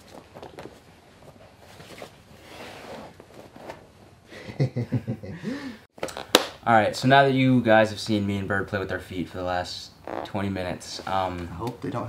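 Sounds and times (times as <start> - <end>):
rustling on a foam mat: 0.0 - 4.1
faint breathing: 5.3 - 5.9.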